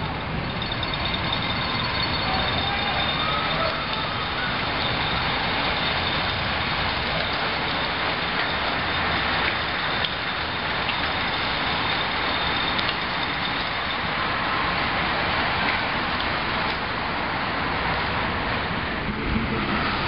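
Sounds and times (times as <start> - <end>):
bicycles whirring past: 0.0 - 15.4.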